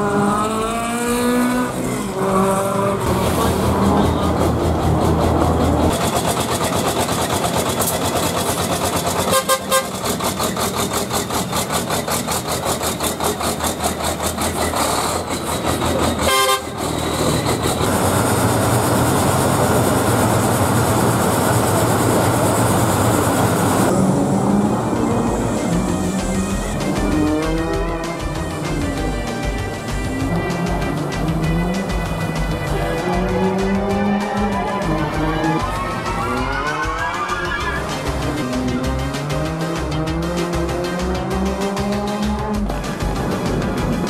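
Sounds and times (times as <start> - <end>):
diesel engine running: 0.0 - 44.0
horn toots: 9.2 - 10.1, 16.2 - 17.0, 25.3 - 29.2, 29.9 - 38.8.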